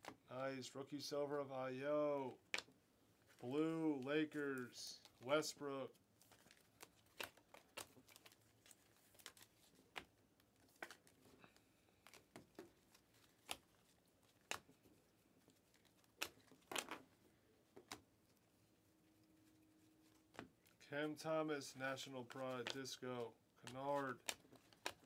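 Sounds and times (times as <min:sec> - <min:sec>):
cards clicking and flicking: 0:06.3 - 0:17.1, 0:22.0 - 0:25.0.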